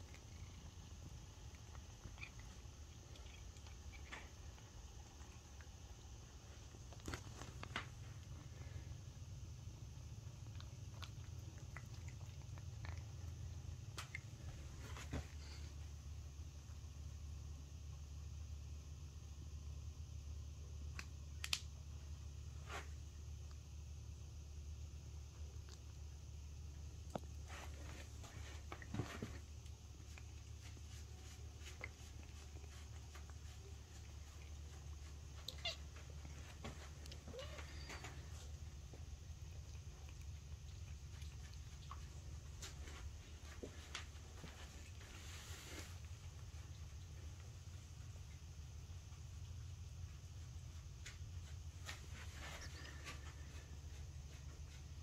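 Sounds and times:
cat chewing: 0:00.0 - 0:15.8, 0:25.4 - 0:51.0
low steady hum: 0:00.0 - 0:55.0
cat meowing: 0:35.4 - 0:35.9, 0:37.3 - 0:38.1.

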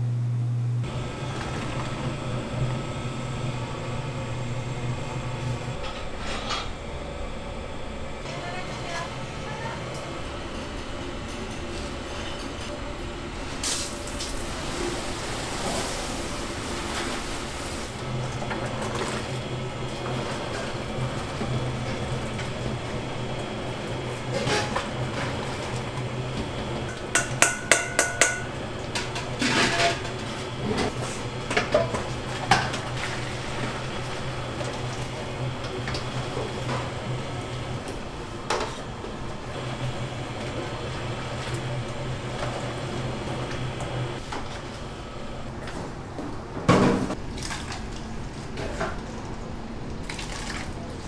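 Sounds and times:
low machine hum: 0:00.0 - 0:51.0
dishes and utensils clinking: 0:26.9 - 0:30.1.

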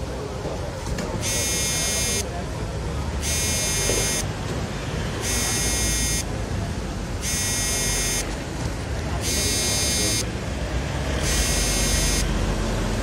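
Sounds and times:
harsh electronic buzzer tone: 0:01.2 - 0:02.3, 0:03.2 - 0:04.3, 0:05.2 - 0:06.4, 0:07.2 - 0:08.4, 0:09.2 - 0:10.4, 0:11.2 - 0:12.4
passing vehicles rumbling: 0:04.2 - 0:05.5, 0:06.2 - 0:07.4, 0:08.0 - 0:13.0.

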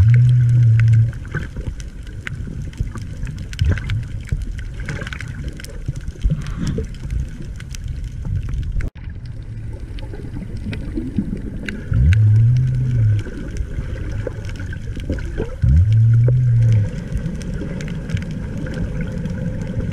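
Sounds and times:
loud low hum: 0:00.0 - 0:01.2, 0:12.0 - 0:13.3, 0:15.6 - 0:17.2
crackling clicks: 0:00.0 - 0:19.9
underwater rumbling wash: 0:00.0 - 0:19.9.

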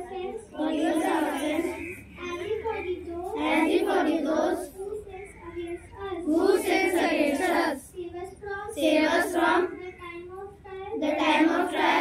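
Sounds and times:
children singing in unison: 0:00.0 - 0:02.0, 0:03.4 - 0:04.7, 0:06.3 - 0:07.8, 0:08.8 - 0:09.9, 0:11.0 - 0:12.0.

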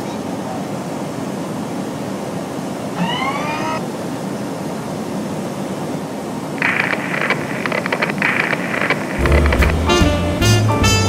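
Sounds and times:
propeller plane engine drone: 0:02.4 - 0:04.1
short rising tone: 0:09.2 - 0:10.8.

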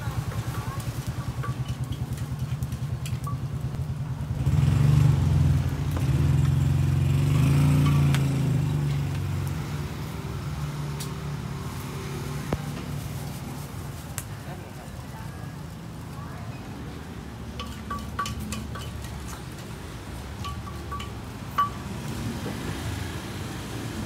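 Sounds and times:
vehicle engine puttering: 0:00.0 - 0:09.3, 0:17.5 - 0:22.9.

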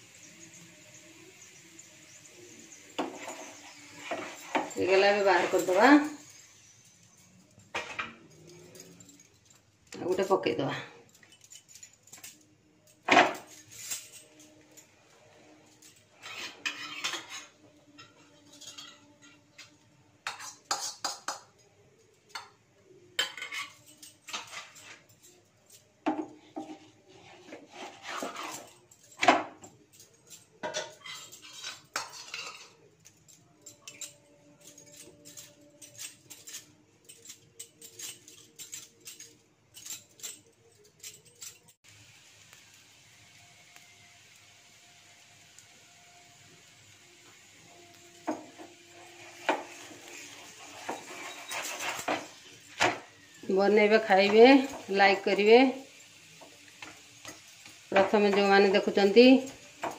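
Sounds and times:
metal spatula scraping griddle: 0:00.1 - 0:09.6, 0:13.0 - 0:22.5, 0:23.1 - 0:41.8, 0:46.6 - 0:59.9.

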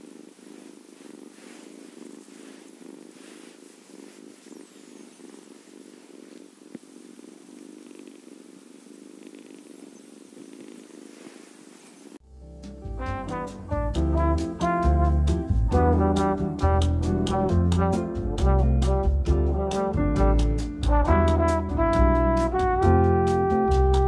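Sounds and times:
kitten purring: 0:00.0 - 0:12.2, 0:20.4 - 0:22.7.

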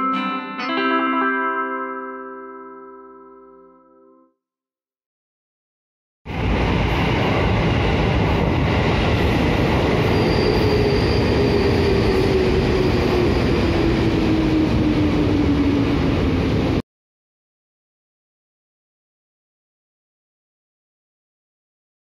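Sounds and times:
train wheels on rails: 0:06.3 - 0:16.8
faint high squeal: 0:10.1 - 0:13.6.

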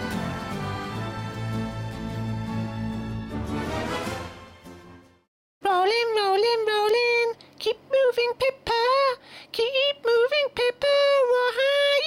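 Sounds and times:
high-pitched person singing: 0:05.6 - 0:12.0.

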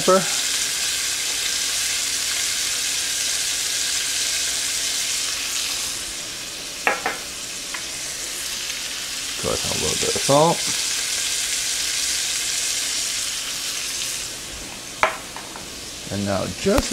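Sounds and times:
fish sizzling in butter: 0:00.0 - 0:16.9.

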